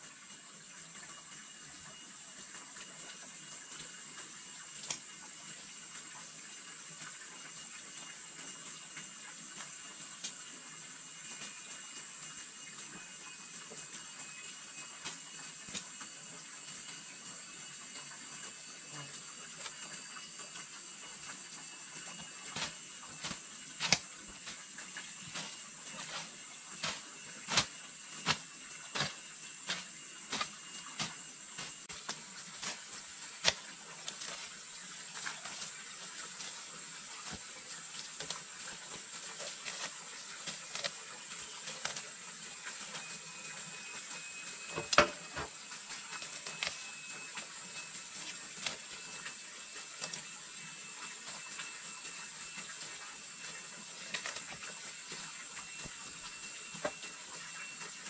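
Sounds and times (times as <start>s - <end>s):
high thin whine: 9.6s - 58.0s
steady hiss: 14.8s - 50.3s.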